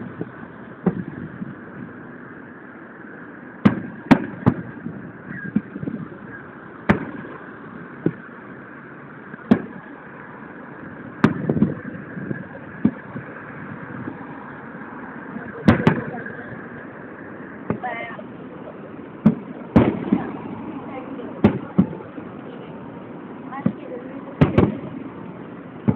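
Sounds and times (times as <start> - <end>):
softer firework pops: 0.2 - 1.3, 3.6 - 8.3, 9.4 - 9.9, 11.2 - 13.3, 17.6 - 17.9, 19.2 - 20.5, 21.4 - 22.1, 24.4 - 24.9
firework shells bursting: 3.6 - 22.4, 23.6 - 25.9.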